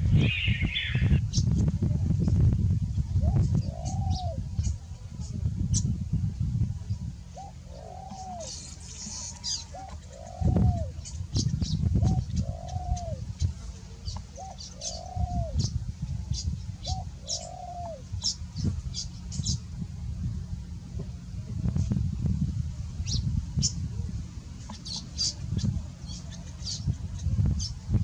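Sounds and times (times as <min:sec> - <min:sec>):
dove cooing: 0:00.0 - 0:01.2, 0:03.2 - 0:04.8, 0:07.3 - 0:19.1
small birds chirping: 0:00.0 - 0:19.8, 0:24.6 - 0:28.0
low steady rumble: 0:00.0 - 0:28.0.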